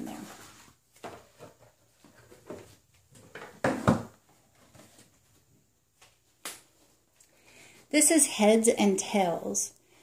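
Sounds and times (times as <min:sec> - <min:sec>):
cardboard boxes knocking: 0:03.3 - 0:04.2.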